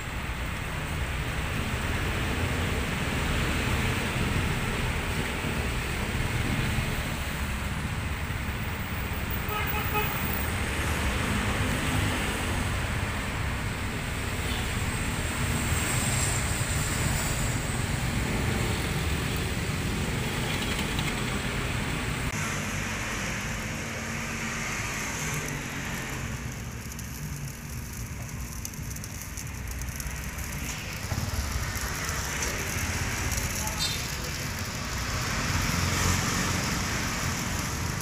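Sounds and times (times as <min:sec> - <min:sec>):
road traffic rumble: 0:00.0 - 0:38.0
batter sizzling in a pan: 0:22.7 - 0:38.0.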